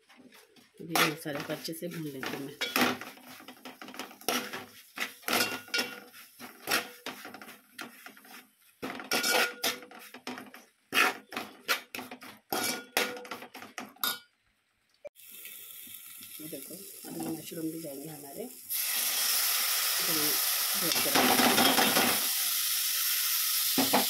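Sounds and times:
metal spoon scraping a pan: 0.1s - 14.2s.

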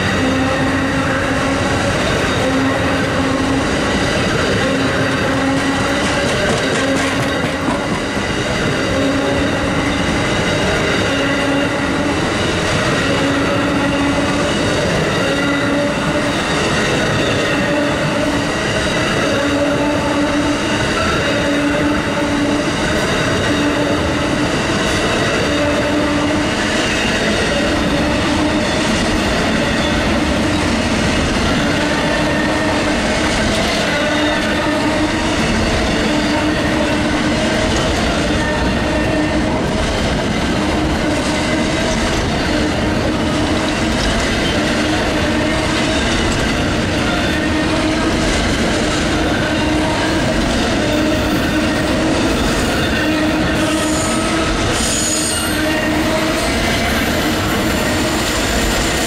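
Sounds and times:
train wheels rumbling on rail: 0.0s - 59.0s
ringing wheel squeal: 52.4s - 55.7s.

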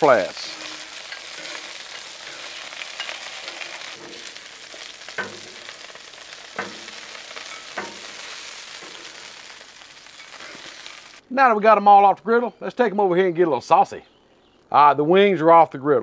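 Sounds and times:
chicken wings sizzling in oil: 0.0s - 11.2s
metal tongs clacking: 0.5s - 11.1s.

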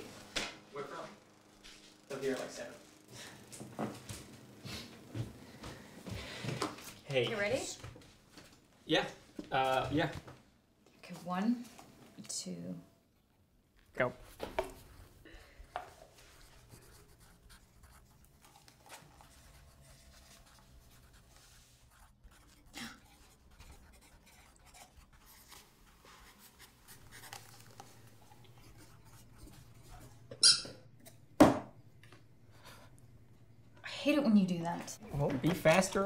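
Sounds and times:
pencil scratching on paper: 16.0s - 30.3s.

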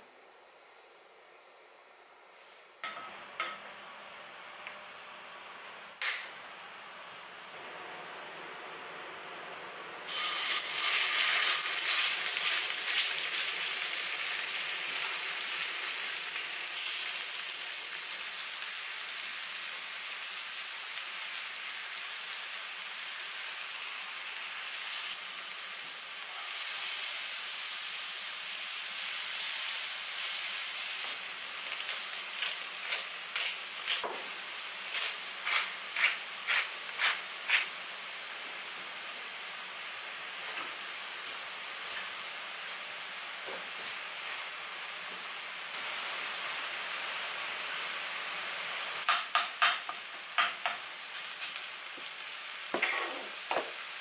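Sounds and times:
meat sizzling in a frying pan: 10.1s - 38.3s, 45.5s - 54.0s
spatula striking a pan: 49.1s - 50.8s.

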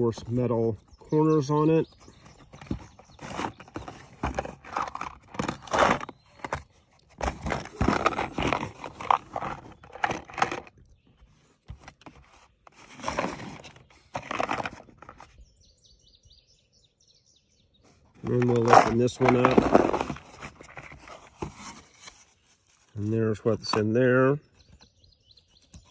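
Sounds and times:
faint bird chirps: 0.2s - 4.2s, 15.0s - 18.7s, 22.3s - 25.9s.

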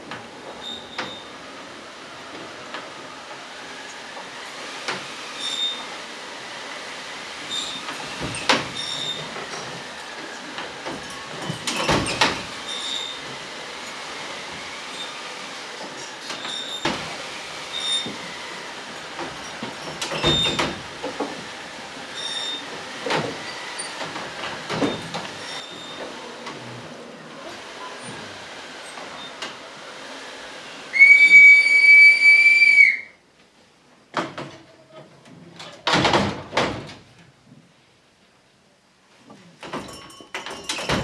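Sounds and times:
loud steady high whistle: 30.9s - 33.2s.

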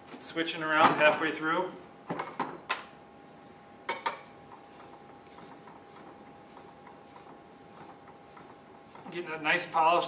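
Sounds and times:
stone scraping steel blade: 4.5s - 9.2s.

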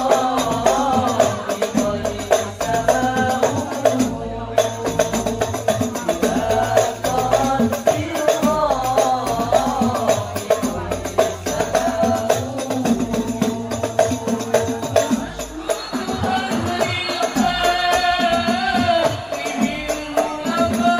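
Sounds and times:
frame drums beating: 0.0s - 20.9s
men singing through microphones: 0.0s - 20.9s.

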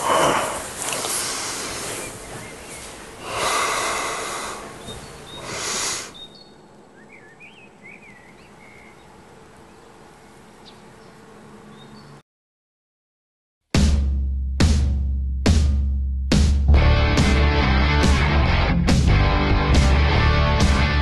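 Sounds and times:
person breathing heavily: 0.0s - 2.2s, 3.2s - 6.2s
faint bird chirps: 4.6s - 9.9s.

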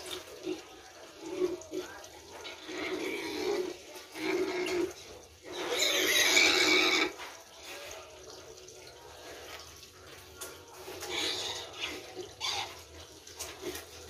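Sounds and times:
piglets grunting: 0.0s - 7.2s, 10.9s - 12.9s
piglet squealing: 2.6s - 7.2s, 11.0s - 12.9s.

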